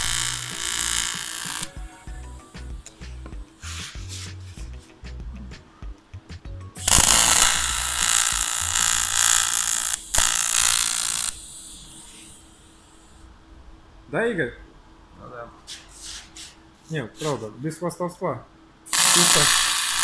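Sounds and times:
welding arc hissing: 0:00.0 - 0:01.8, 0:02.6 - 0:04.6, 0:06.8 - 0:13.3, 0:18.9 - 0:20.0
faint buzz: 0:00.0 - 0:06.1, 0:06.8 - 0:17.6.

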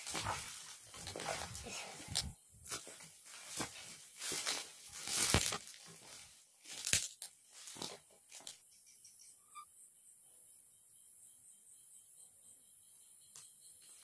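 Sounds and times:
footsteps crunching dry grass: 0:00.0 - 0:08.5
faint insect chirps: 0:08.4 - 0:14.0.

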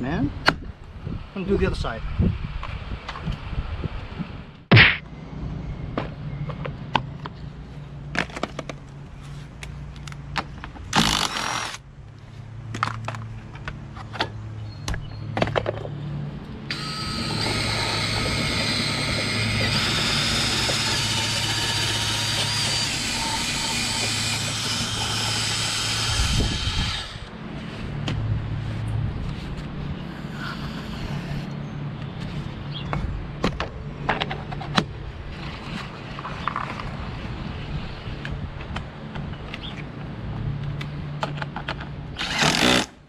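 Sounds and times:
drill wire brush scouring rust: 0:16.7 - 0:27.3.

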